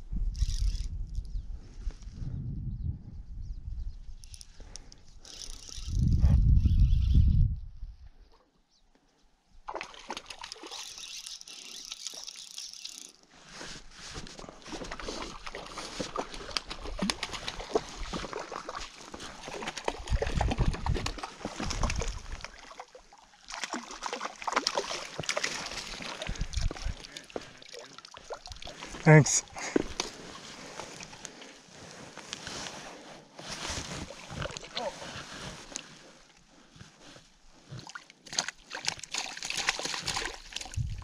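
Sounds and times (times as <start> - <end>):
fish splashing in water: 14.9 - 28.9, 37.8 - 40.8.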